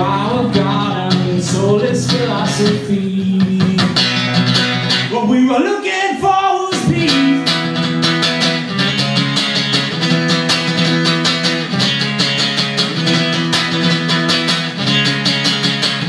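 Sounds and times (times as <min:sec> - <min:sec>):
acoustic guitar strumming: 0:00.0 - 0:16.0.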